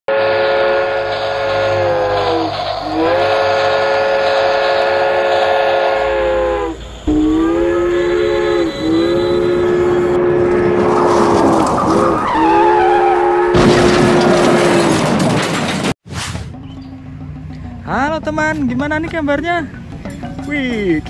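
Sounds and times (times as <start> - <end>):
train whistle blasts: 0.1 - 11.4, 12.3 - 13.6.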